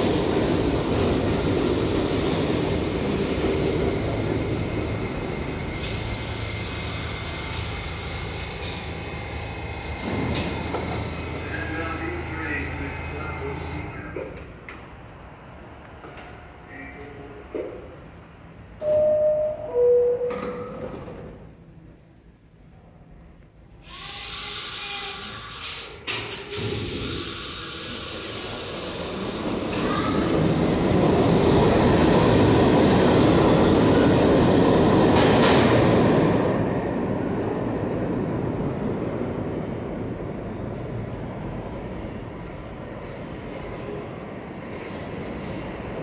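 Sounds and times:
subway train motors and wheels: 0:00.0 - 0:46.0
train clunks: 0:10.0 - 0:11.2, 0:18.8 - 0:21.5, 0:35.0 - 0:36.0
air brake hiss: 0:23.8 - 0:30.1.

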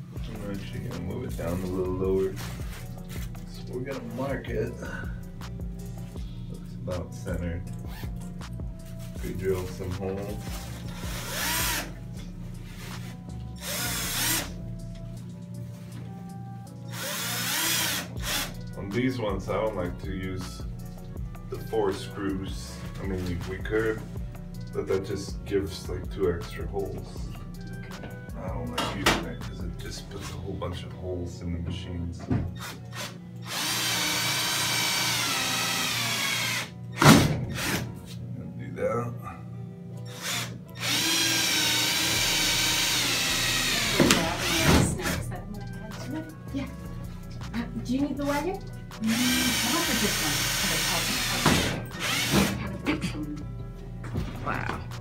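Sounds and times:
cordless drill drilling: 0:10.9 - 0:12.0, 0:13.6 - 0:14.6, 0:16.9 - 0:18.6, 0:32.6 - 0:36.7, 0:40.1 - 0:45.2, 0:49.1 - 0:52.6
drill motor whining faintly: 0:10.9 - 0:12.0, 0:13.6 - 0:14.5, 0:40.1 - 0:44.7, 0:52.0 - 0:52.3.

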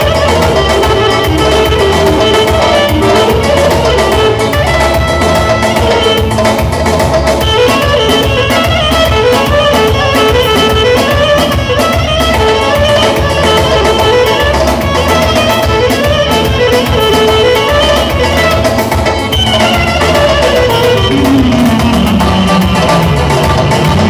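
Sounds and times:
bass and drum beat: 0:00.0 - 0:24.0
wavering lead melody: 0:00.0 - 0:24.0.

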